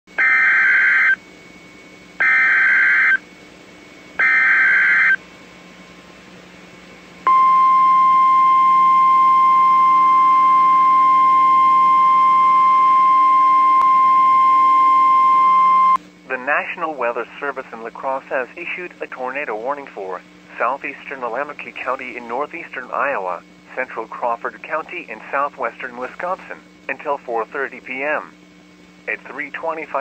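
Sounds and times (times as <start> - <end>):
steady alarm tone: 0.1 - 1.2, 2.2 - 3.2, 4.2 - 5.2, 7.3 - 16.0.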